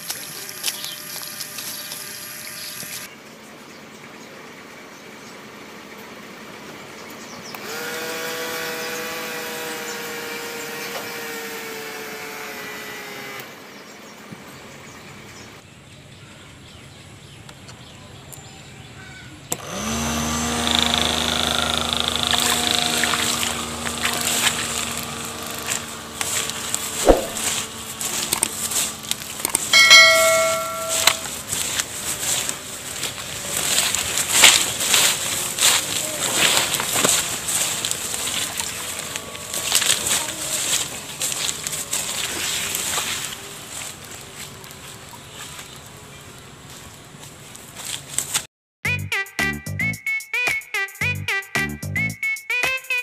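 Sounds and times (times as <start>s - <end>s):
small electric motors whirring: 0.0s - 3.1s, 7.6s - 13.8s, 19.5s - 48.5s.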